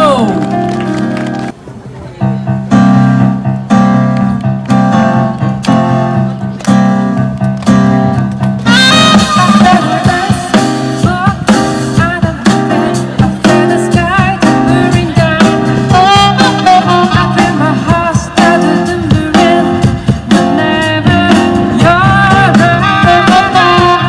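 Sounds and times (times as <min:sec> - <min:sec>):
keyboard: 0:00.0 - 0:24.0
saxophone melody: 0:08.6 - 0:19.6, 0:20.3 - 0:24.0.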